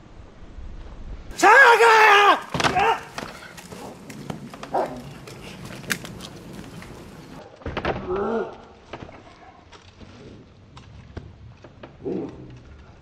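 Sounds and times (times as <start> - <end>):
scuffling with thumps: 2.4 - 7.4.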